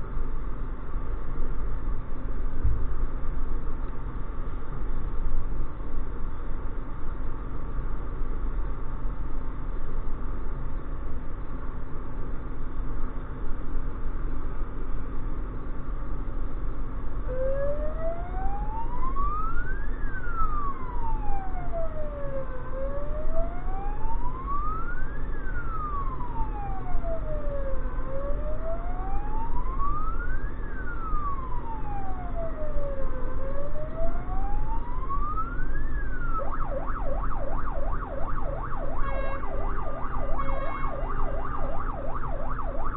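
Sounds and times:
truck engine and road noise: 0.0s - 42.9s
siren wailing: 17.2s - 42.9s.

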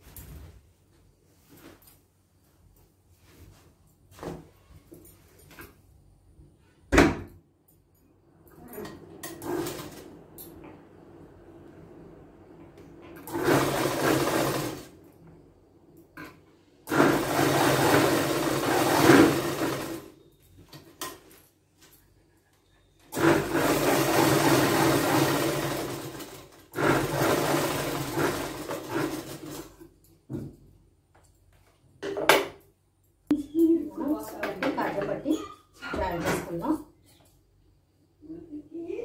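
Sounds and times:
sewing machine stitching: 9.3s - 10.1s, 13.2s - 14.9s, 16.9s - 20.1s, 23.1s - 29.8s.

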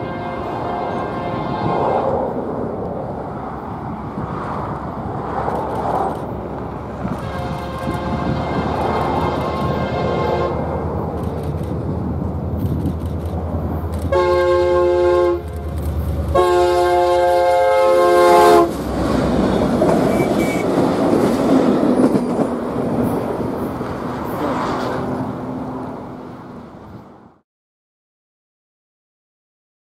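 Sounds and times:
locomotive air horn blasts: 0.0s - 1.8s, 7.0s - 10.7s, 14.1s - 18.8s, 20.0s - 20.8s
train wheels on rails: 0.9s - 14.7s, 15.3s - 27.1s
diesel engine rumble: 2.1s - 27.4s.

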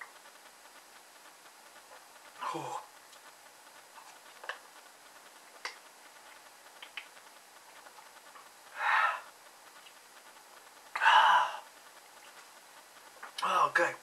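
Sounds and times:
mouth clicks: 6.8s - 7.2s.

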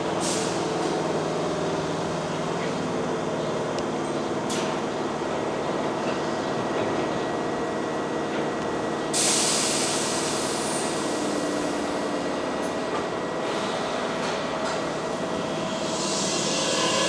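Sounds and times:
electric train humming: 0.6s - 17.0s
compressed air hiss: 9.2s - 11.0s, 15.6s - 17.0s.

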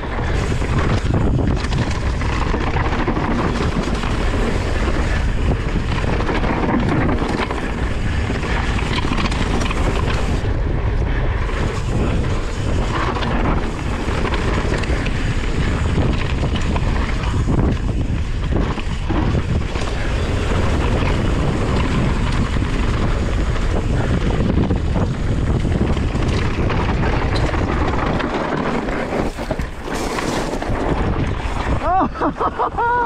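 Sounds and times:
bike knocks and rattles: 0.0s - 10.6s, 11.4s - 32.1s
wind noise on microphone: 0.0s - 33.0s
tyre rumble on gravel: 27.0s - 31.7s.

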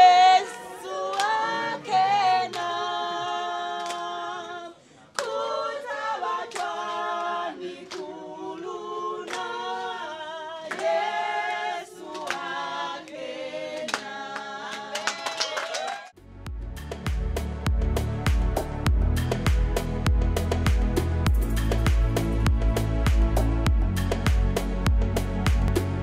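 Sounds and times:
unaccompanied choir singing: 0.0s - 15.2s.

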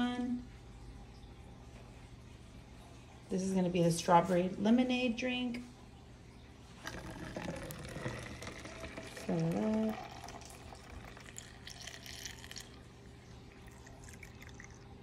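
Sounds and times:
liquid pouring into bottles: 6.8s - 15.0s.

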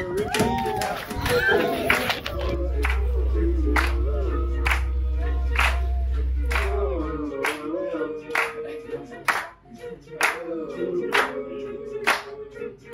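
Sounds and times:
people clapping on a beat: 0.0s - 3.1s, 3.8s - 4.0s, 4.6s - 4.9s, 5.5s - 5.9s, 6.5s - 6.7s, 7.4s - 7.7s, 8.3s - 9.6s, 10.2s - 10.5s, 11.1s - 11.4s, 12.0s - 12.4s
group of people singing: 0.0s - 12.9s
low hum: 1.7s - 8.9s.

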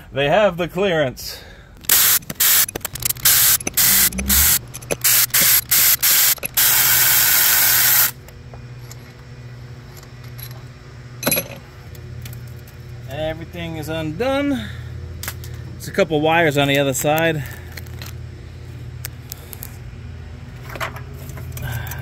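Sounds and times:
power ratchet hissing bursts: 1.8s - 8.2s.

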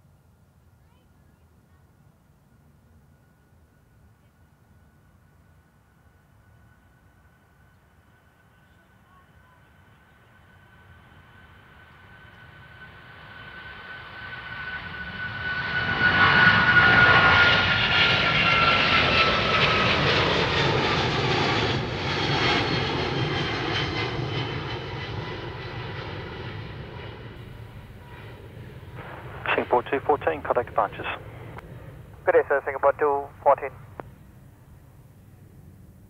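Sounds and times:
jet engines at takeoff: 4.8s - 36.0s
high jet whine: 27.4s - 34.4s.

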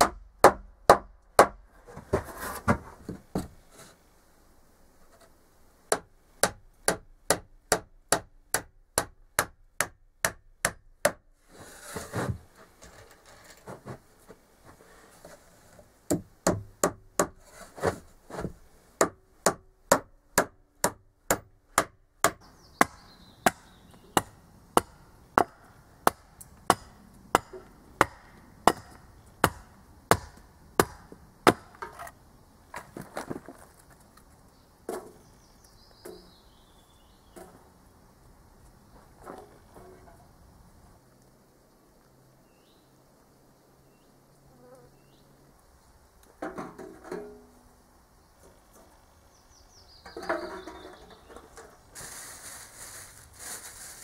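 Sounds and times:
hammer striking wood: 0.0s - 1.6s, 5.9s - 11.2s, 16.1s - 17.4s, 19.0s - 32.0s
hatchet chopping wood: 0.0s - 1.6s, 5.9s - 11.2s, 16.1s - 17.4s, 19.0s - 32.1s.

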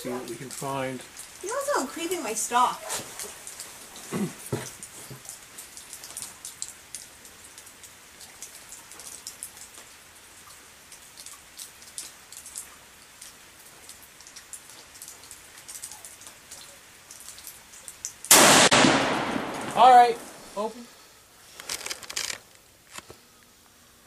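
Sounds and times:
rain pattering: 0.0s - 23.0s.

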